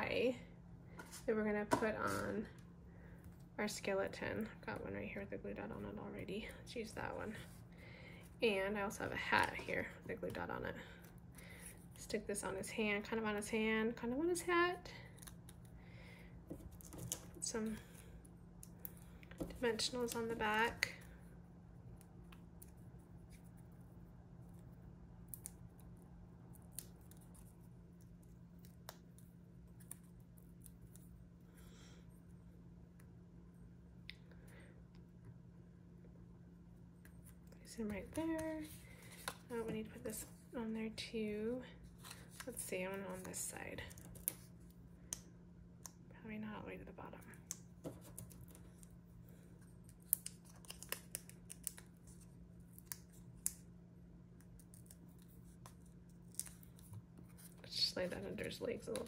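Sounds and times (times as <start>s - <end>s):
steady low hum: 0.0s - 59.0s
paper ticks and crinkles: 49.8s - 53.6s, 54.4s - 59.0s.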